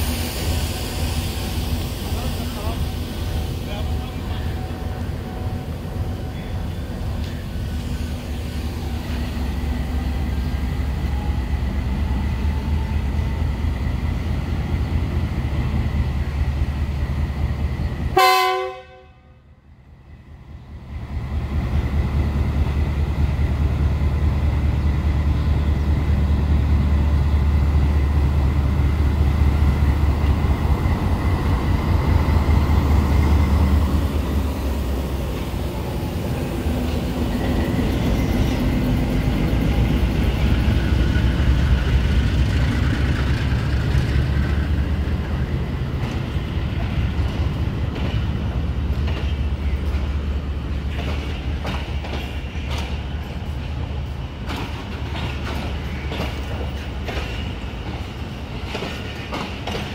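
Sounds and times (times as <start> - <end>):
diesel locomotive engine rumbling: 0.0 - 59.9
locomotive air horn blast: 18.2 - 19.3.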